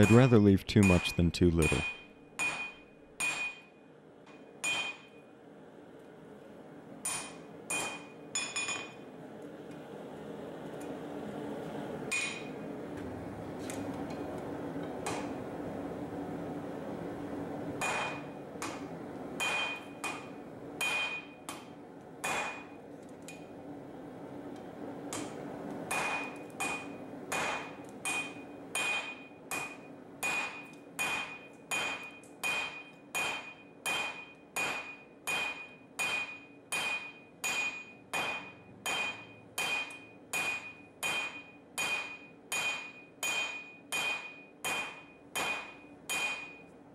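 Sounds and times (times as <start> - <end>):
anvil ringing: 0.0 - 3.8, 4.4 - 5.2, 17.8 - 18.3, 19.4 - 20.2, 20.8 - 21.4, 25.9 - 46.7
hammer striking hot steel on anvil: 0.0 - 5.2, 7.0 - 9.0, 12.1 - 12.6, 14.8 - 15.4, 17.8 - 23.5, 25.1 - 46.8.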